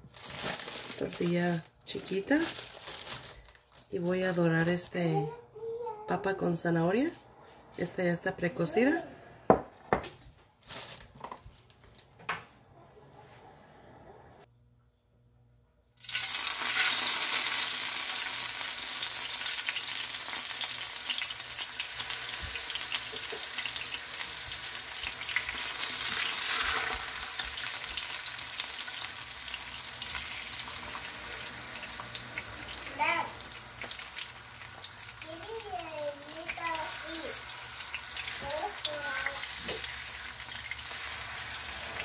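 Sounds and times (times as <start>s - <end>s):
tortillas sizzling in hot oil: 16.0s - 42.0s.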